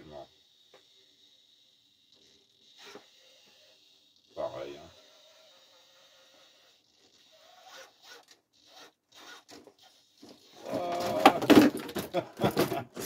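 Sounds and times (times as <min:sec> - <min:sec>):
toy truck scraping carpet: 0:00.8 - 0:13.0
toy truck clattering tumble: 0:08.1 - 0:13.0.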